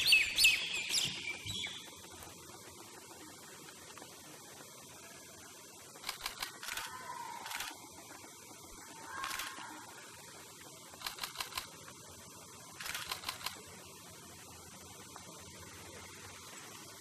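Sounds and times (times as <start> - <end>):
peafowl rattling tail feathers: 6.0 - 7.8, 9.0 - 9.7, 10.9 - 11.8, 12.8 - 13.7.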